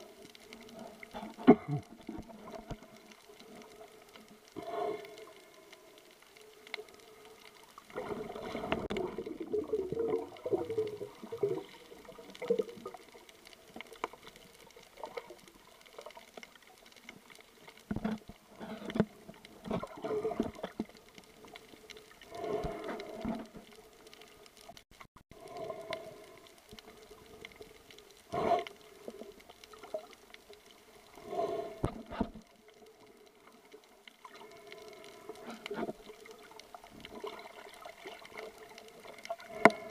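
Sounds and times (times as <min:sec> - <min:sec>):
faint steady hum: 0:00.0 - 0:24.7
water sloshing and bubbling underwater: 0:00.0 - 0:39.9.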